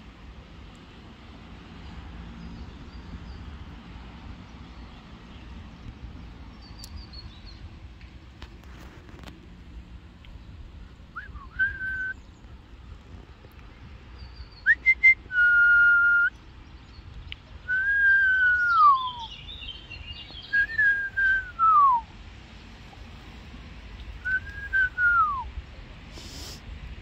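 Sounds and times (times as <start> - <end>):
person whistling: 11.2 - 12.1, 14.7 - 16.3, 17.7 - 19.3, 20.5 - 22.0, 24.2 - 25.4.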